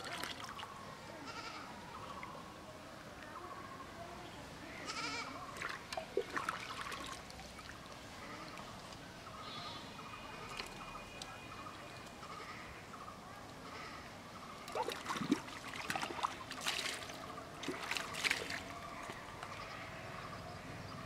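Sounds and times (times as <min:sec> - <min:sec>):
water splashing and sloshing: 0:00.0 - 0:00.7, 0:05.5 - 0:09.0, 0:10.4 - 0:11.9, 0:14.6 - 0:19.8.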